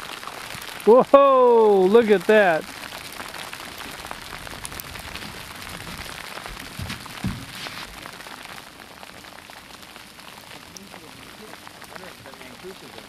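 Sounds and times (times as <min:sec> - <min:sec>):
hail pattering: 0:00.0 - 0:13.0
low thumps: 0:04.6 - 0:08.0.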